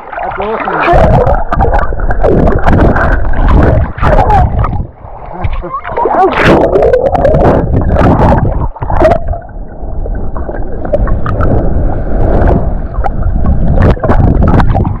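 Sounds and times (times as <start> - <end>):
muffled underwater rushing: 0.0 - 15.0
water splashing and bubbling: 0.0 - 15.0.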